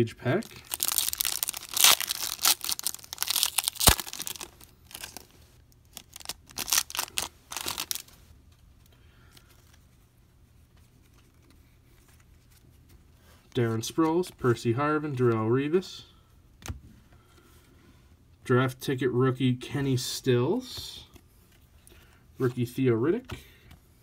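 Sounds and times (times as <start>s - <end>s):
plastic wrapper tearing and crinkling: 0.4s - 8.1s.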